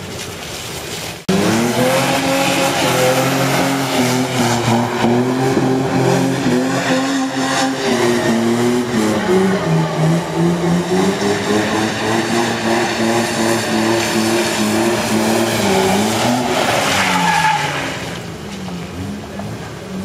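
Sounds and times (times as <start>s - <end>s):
engine revving hard: 1.3s - 18.2s
tyre squeal: 15.6s - 18.2s.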